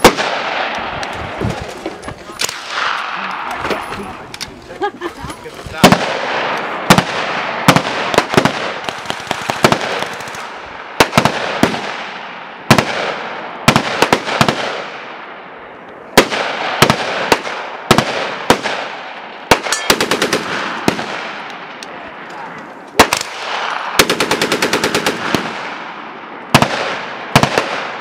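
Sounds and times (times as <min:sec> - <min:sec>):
machine gun firing with echo: 0:05.8 - 0:12.1, 0:19.5 - 0:21.4, 0:23.0 - 0:25.8.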